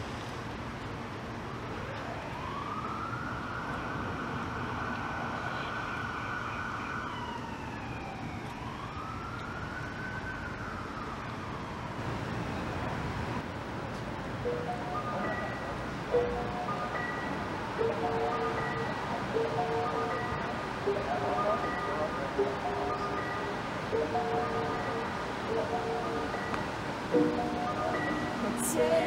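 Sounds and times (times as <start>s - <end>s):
emergency siren wailing: 1.5s - 12.3s, 14.4s - 29.0s
steady rushing background noise: 9.9s - 29.0s.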